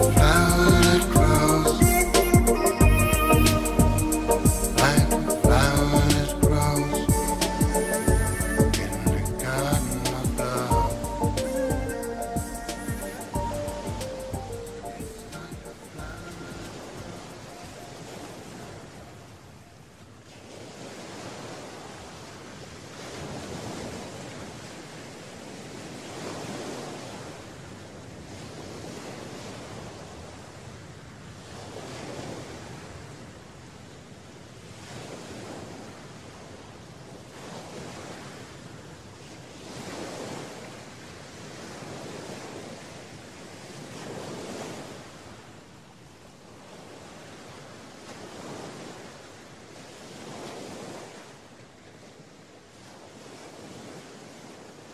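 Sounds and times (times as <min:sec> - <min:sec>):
ocean waves breaking: 0:00.0 - 0:27.6, 0:34.8 - 0:45.7.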